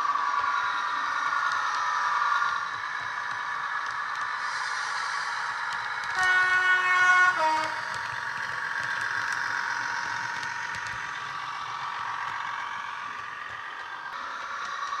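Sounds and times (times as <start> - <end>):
two-tone train horn: 6.2 - 7.9.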